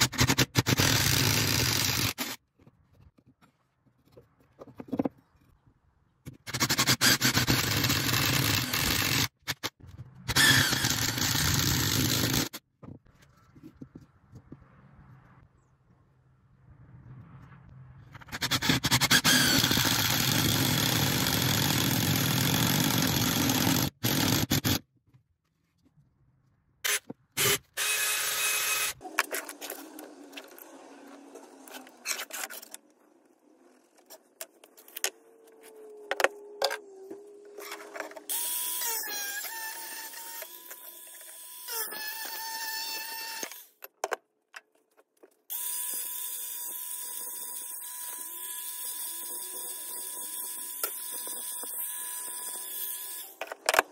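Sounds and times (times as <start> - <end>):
cordless drill boring into wood: 0.2 - 2.4, 6.5 - 9.3, 10.3 - 12.6, 18.4 - 24.8, 26.9 - 29.0, 38.3 - 43.7, 45.5 - 53.4
knocks and handling noises: 2.4 - 6.5, 12.6 - 14.8, 29.0 - 38.3, 43.8 - 45.5
angle grinder cutting pipe: 33.8 - 43.7, 45.5 - 53.9.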